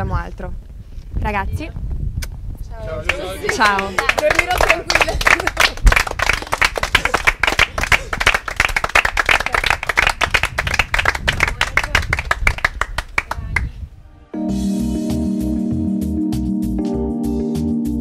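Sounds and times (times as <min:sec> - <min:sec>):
small group clapping: 0:02.9 - 0:13.7.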